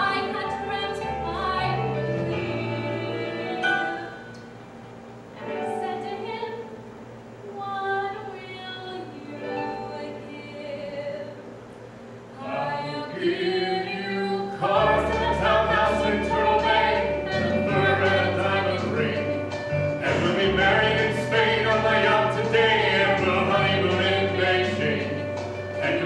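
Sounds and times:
woman singing a ballad: 0.0 - 4.3, 7.4 - 11.4, 12.4 - 19.4
musical accompaniment: 0.0 - 6.9, 14.6 - 26.0.

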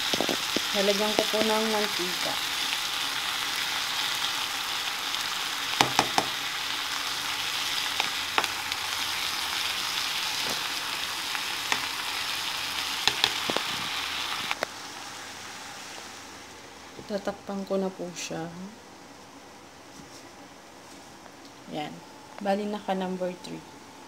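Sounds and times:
oil sizzling in a pan: 0.0 - 17.3
spatula clicking on pan: 13.0 - 13.6.

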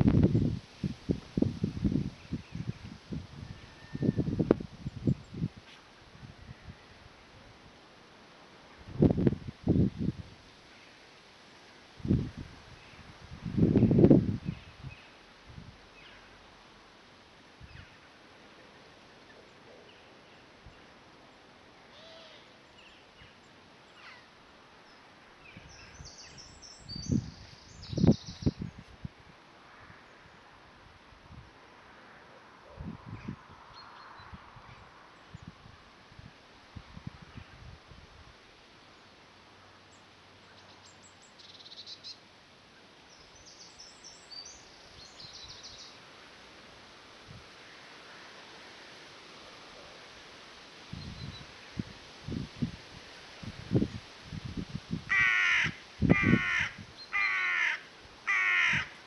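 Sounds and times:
faint outdoor hiss: 0.0 - 59.0
songbird chirps and trills: 22.3 - 28.9, 39.8 - 46.0.

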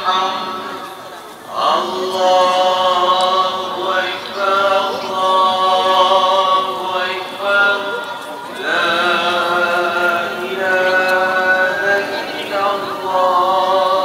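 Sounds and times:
men chanting: 1.5 - 14.0.

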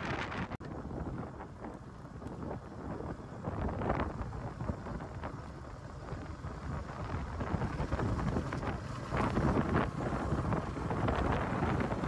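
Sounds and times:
road rumble: 0.0 - 12.0
wind buffeting microphone: 0.0 - 12.0
motorcycle engine: 3.6 - 12.0.

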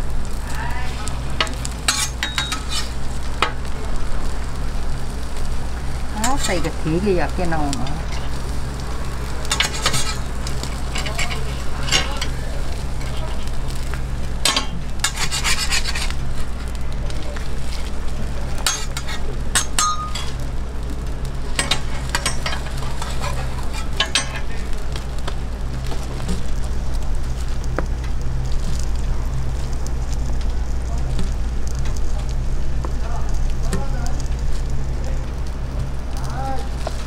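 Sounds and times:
food sizzling on a griddle: 0.0 - 37.0
steady low hum: 0.0 - 37.0
metal spatula scraping griddle: 1.4 - 3.5, 8.0 - 8.6, 9.2 - 16.8, 17.6 - 20.4, 21.5 - 24.7.

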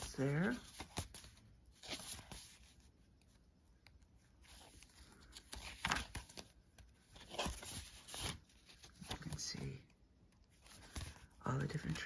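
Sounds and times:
paper rustling: 0.0 - 9.9, 10.5 - 12.0.

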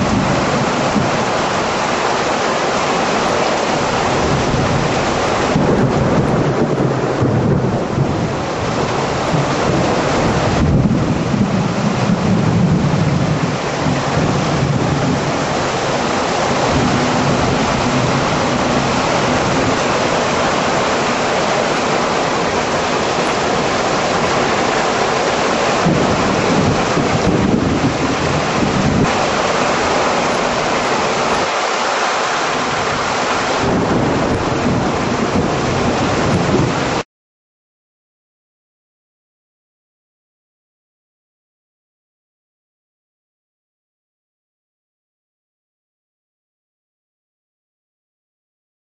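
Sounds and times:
thunder rolling: 0.0 - 31.5, 32.5 - 37.0
heavy rain and wind: 0.0 - 37.0.

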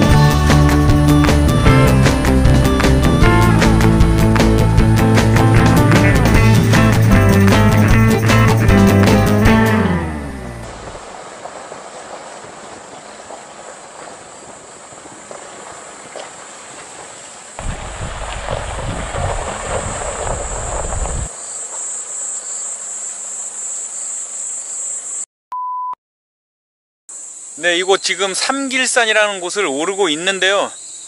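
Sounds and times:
tyres rolling over gravel: 10.7 - 21.3
high insect trill: 19.6 - 25.3, 27.1 - 31.0.

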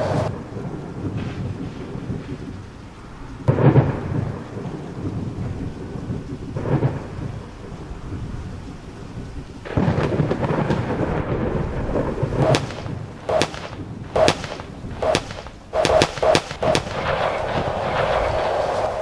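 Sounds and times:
rumbling background noise: 0.0 - 19.0
sharp bangs: 12.4 - 18.5.

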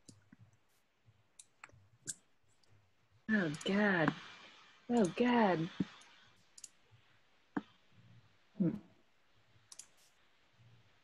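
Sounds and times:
computer mouse clicks: 5.8 - 6.8, 9.7 - 10.1.

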